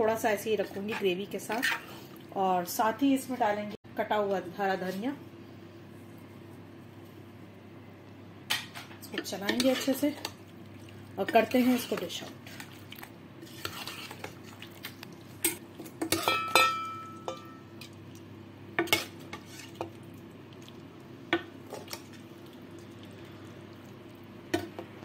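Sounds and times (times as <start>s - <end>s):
steel ladle clinking on pots: 15.5s - 17.7s.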